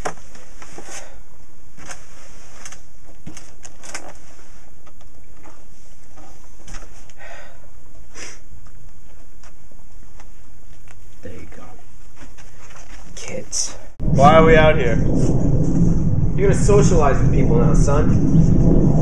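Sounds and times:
book pages turning: 1.7 - 7.2, 12.0 - 13.2.

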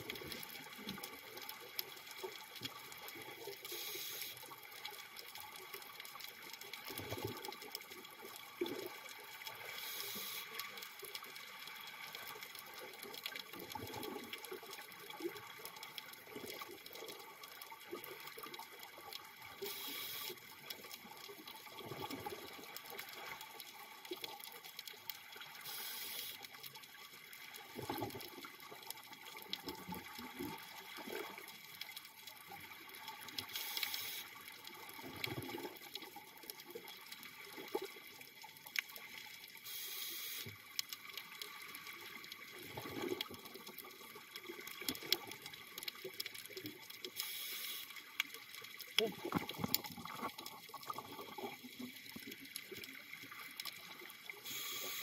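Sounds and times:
crackle of small clicks: 0.0 - 55.0
air bubbles gurgling: 20.7 - 24.3, 27.6 - 31.7, 34.8 - 38.4, 41.3 - 47.1, 48.4 - 55.0.

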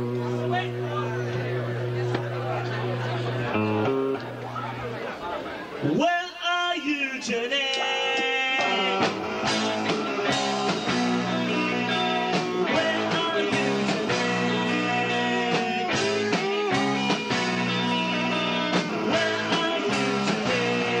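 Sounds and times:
electric guitar: 0.0 - 6.0, 7.7 - 21.0
rock band playing live: 0.0 - 6.0, 7.3 - 21.0.

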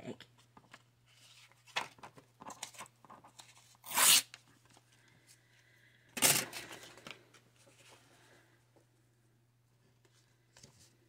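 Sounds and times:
paper tearing: 3.8 - 4.4.

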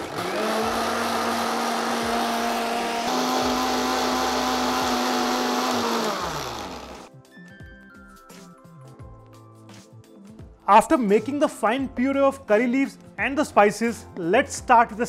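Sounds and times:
mixer grinder motor whine: 0.0 - 7.1.

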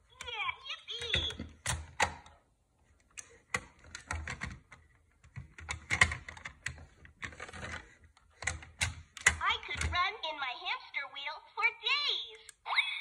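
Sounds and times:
plastic toy clicking and clattering: 3.2 - 10.0.

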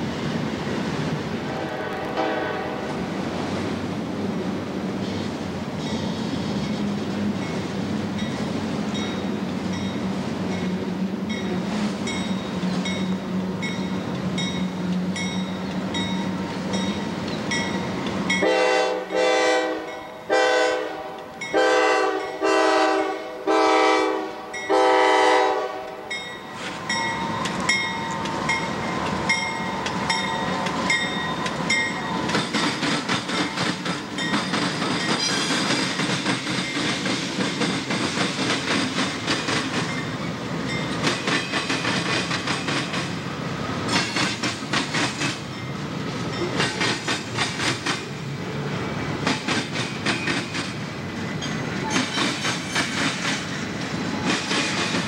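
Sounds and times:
locomotive engine humming: 0.0 - 44.0
train air horn blasts: 1.4 - 3.0, 18.4 - 26.2
train wheels clattering on rails: 25.9 - 55.0.

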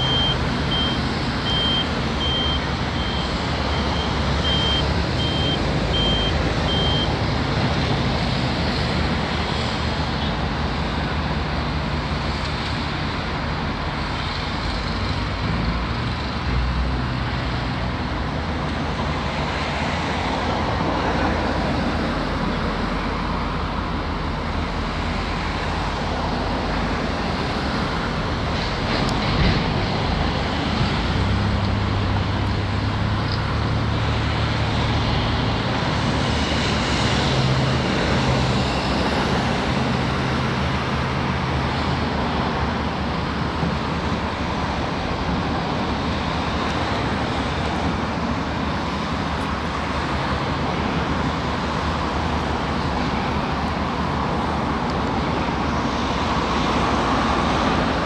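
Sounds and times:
reversing alarm beeping: 0.0 - 7.2
heavy diesel engines running: 0.0 - 58.0.

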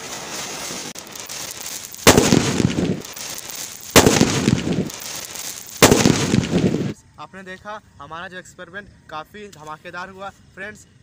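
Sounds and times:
firecracker bangs: 0.0 - 7.0
rumbling crackle: 0.0 - 7.0.

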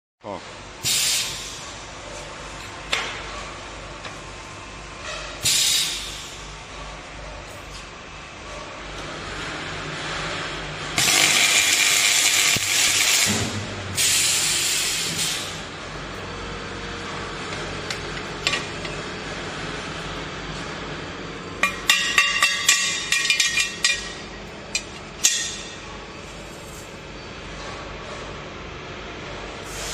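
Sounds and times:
welding machine hissing: 11.0 - 15.6.

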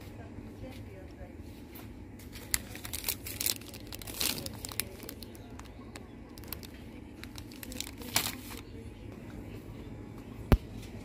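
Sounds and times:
steady low hum: 0.0 - 11.0
plastic wrapper rustling: 2.2 - 8.7.

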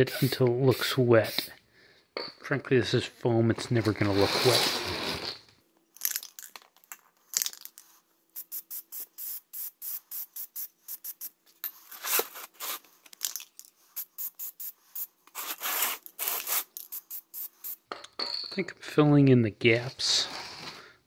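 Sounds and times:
aerosol can spraying: 0.1 - 1.5, 8.4 - 11.4, 13.9 - 17.9.

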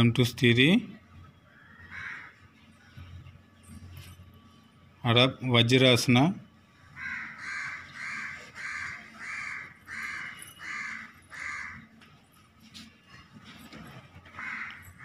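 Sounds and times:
crow cawing: 1.5 - 2.4, 6.8 - 11.9, 14.3 - 15.0.

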